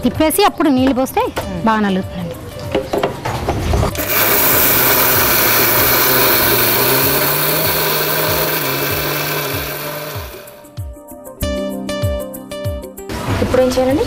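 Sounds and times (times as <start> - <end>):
electric mixer grinder grinding: 3.9 - 10.7.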